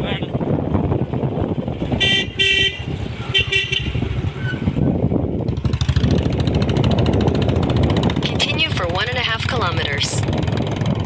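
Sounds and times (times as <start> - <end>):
motorcycle engine: 0.0 - 11.0
road noise: 0.0 - 11.0
vehicle horn beeps: 2.0 - 4.1.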